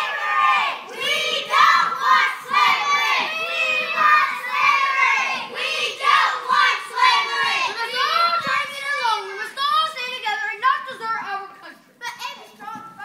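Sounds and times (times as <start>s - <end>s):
children shouting together: 0.0s - 9.7s.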